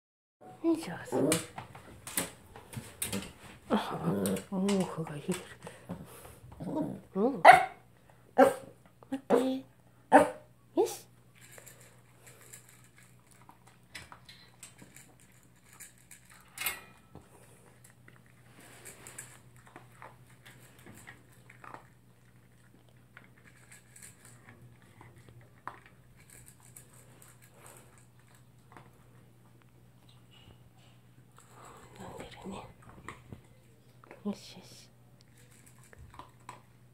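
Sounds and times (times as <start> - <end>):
dog crunching kibble: 11.2 - 29.8, 35.2 - 36.9.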